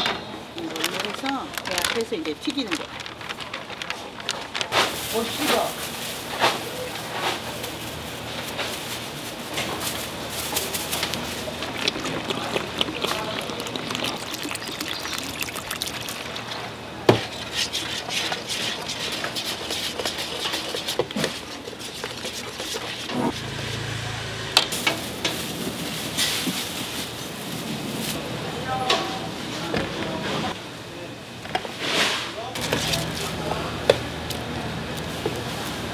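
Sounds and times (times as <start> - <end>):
water poured onto flour: 11.2 - 16.4
utensil scraping a steel bowl: 17.2 - 23.9.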